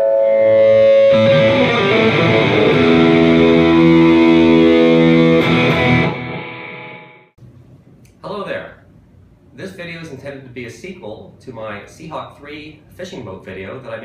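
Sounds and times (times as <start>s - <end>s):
distorted electric guitar chords: 0.0s - 7.3s.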